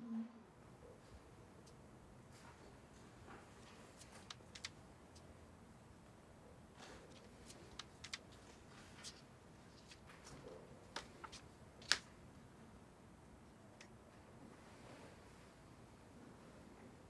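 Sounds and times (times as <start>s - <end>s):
paper crackles: 3.4s - 4.8s, 6.8s - 12.1s
paper sheets being turned: 3.6s - 4.8s, 6.9s - 12.1s.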